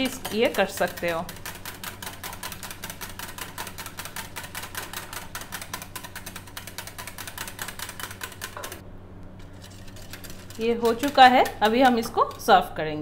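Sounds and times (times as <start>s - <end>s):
wire whisk rattling in glass bowl: 0.0s - 8.8s, 9.6s - 12.6s.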